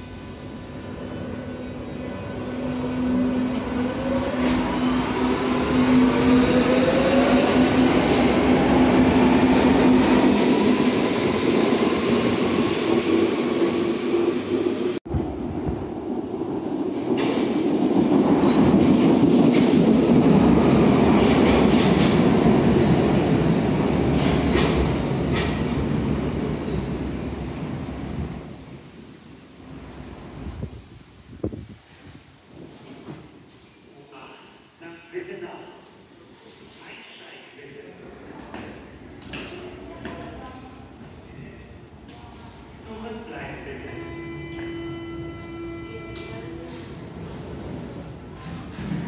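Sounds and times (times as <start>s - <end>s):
train wheels rumbling on rails: 1.9s - 28.6s, 46.2s - 49.0s.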